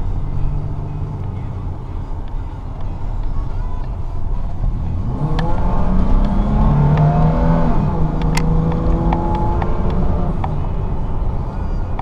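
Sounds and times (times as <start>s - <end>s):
engine accelerating hard: 4.7s - 11.5s.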